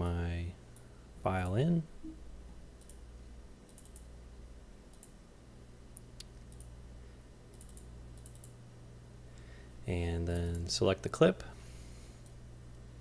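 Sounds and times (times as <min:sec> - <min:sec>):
low steady hum: 0:00.0 - 0:13.0
computer mouse clicks: 0:02.8 - 0:03.0, 0:03.7 - 0:04.1, 0:04.9 - 0:05.2, 0:06.1 - 0:06.8, 0:07.5 - 0:08.6.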